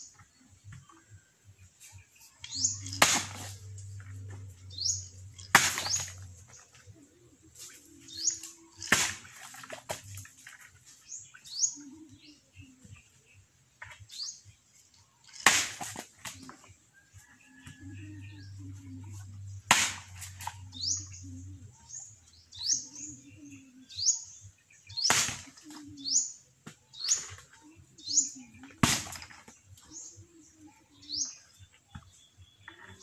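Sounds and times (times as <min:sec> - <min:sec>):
bird chirping: 0:00.0 - 0:08.9, 0:20.3 - 0:25.1, 0:29.5 - 0:33.0
machete chopping coconut: 0:02.9 - 0:03.6, 0:05.5 - 0:06.2, 0:08.8 - 0:10.0, 0:15.4 - 0:16.3, 0:19.7 - 0:20.5, 0:25.0 - 0:25.6, 0:28.8 - 0:29.5.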